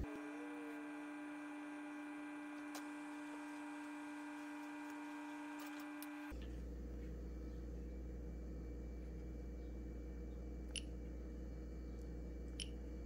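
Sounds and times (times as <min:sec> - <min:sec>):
stepper motors humming: 0:00.0 - 0:06.4.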